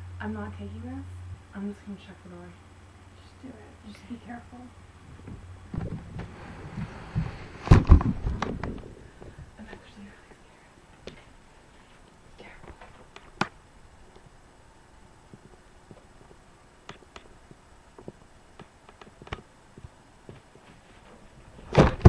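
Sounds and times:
loud thump: 5.2s - 9.0s, 21.7s - 22.0s.

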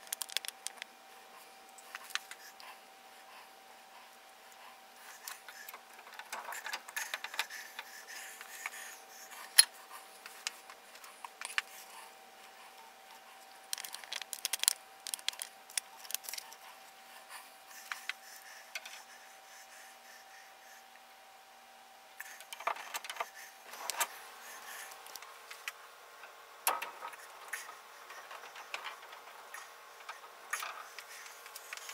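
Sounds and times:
small metallic clicks and rattles: 0.0s - 0.9s, 13.7s - 16.5s
faint hum: 0.0s - 31.9s.

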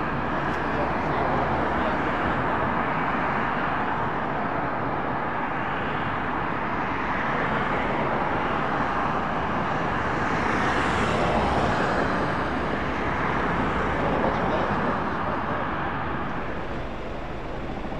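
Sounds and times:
aircraft engines droning: 7.4s - 17.9s.

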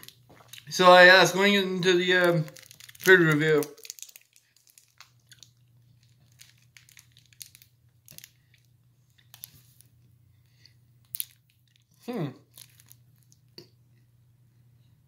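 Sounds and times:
plastic wrapper crinkling: 0.0s - 10.1s, 11.0s - 13.5s
faint steady hum: 0.0s - 15.0s.

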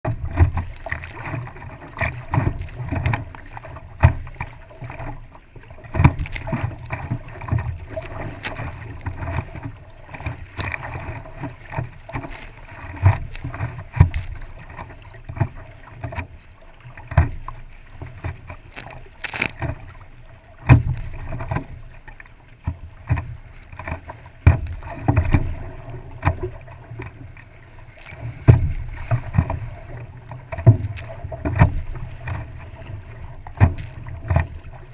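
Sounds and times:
water sloshing and splashing: 0.0s - 34.9s
water slapping board thumps: 5.9s - 6.7s, 28.4s - 29.6s.

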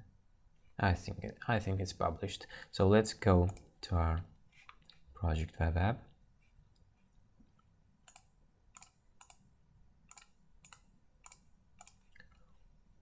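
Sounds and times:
computer mouse clicks: 3.5s - 3.7s, 8.1s - 9.5s, 10.1s - 12.4s.

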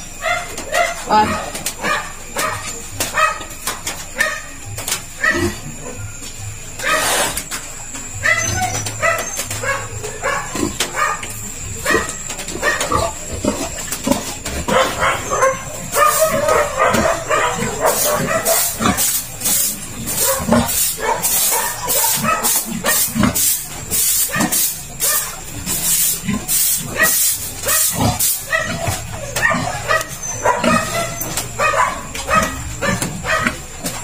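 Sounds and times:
piglets squealing: 8.2s - 13.8s, 26.8s - 33.6s.

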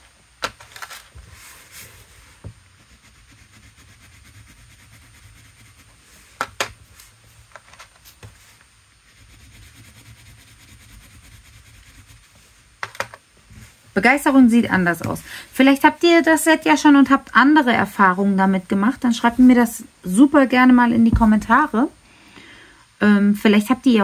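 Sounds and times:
crayon rubbing on paper: 1.7s - 6.2s, 8.3s - 12.7s.

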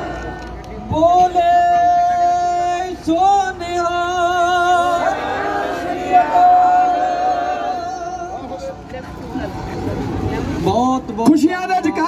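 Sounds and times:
man singing hymn: 0.9s - 5.0s
group singing: 3.8s - 8.4s.

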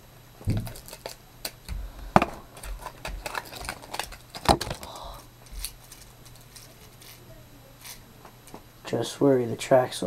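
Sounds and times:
packaging clicks and taps: 0.5s - 4.9s.

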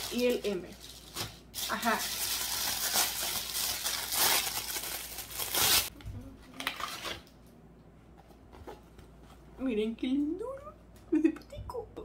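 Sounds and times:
packaging crinkling and rustling: 0.0s - 5.9s, 6.5s - 7.4s.

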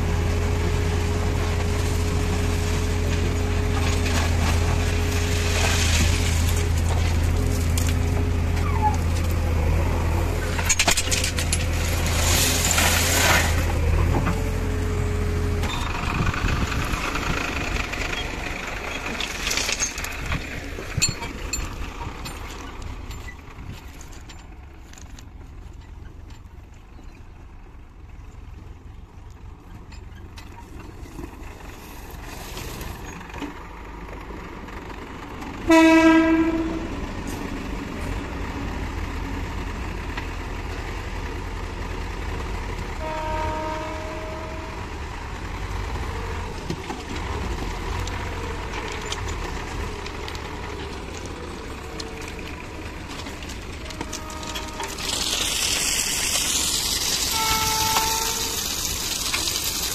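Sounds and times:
diesel engine running: 0.0s - 59.9s
tractor engine running: 0.0s - 59.9s
stones pouring into trolley: 1.6s - 9.4s, 10.5s - 14.0s, 17.6s - 25.1s, 46.5s - 59.9s
horn sounding: 35.7s - 37.0s, 43.0s - 44.9s, 53.8s - 55.1s, 57.2s - 58.8s.

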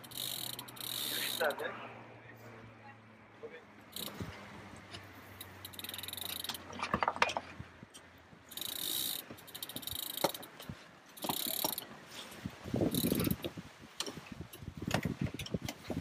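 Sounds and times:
winch ratcheting: 0.0s - 1.6s, 3.9s - 4.4s, 5.0s - 11.9s, 12.8s - 15.9s.

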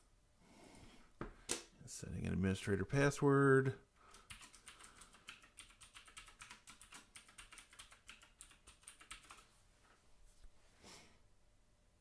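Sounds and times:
faint computer keyboard typing: 4.0s - 9.5s.

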